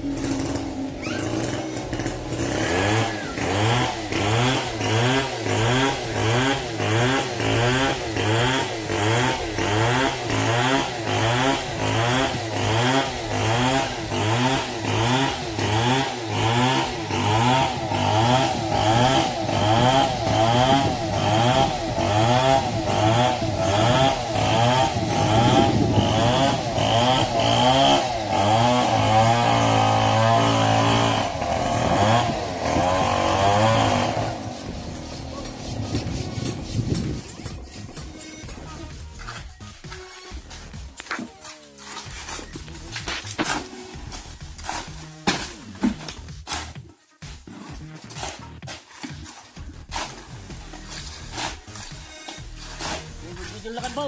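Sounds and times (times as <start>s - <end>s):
small engine pulsing under load: 0.0s - 41.0s.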